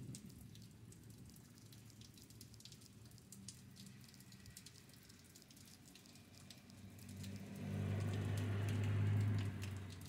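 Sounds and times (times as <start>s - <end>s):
rain pattering: 0.0s - 10.0s
car driving past on wet road: 3.8s - 10.0s.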